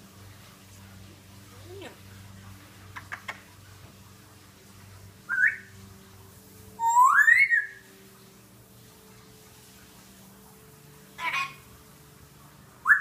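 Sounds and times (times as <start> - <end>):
parrot whistling: 5.3 - 5.7, 6.8 - 7.9.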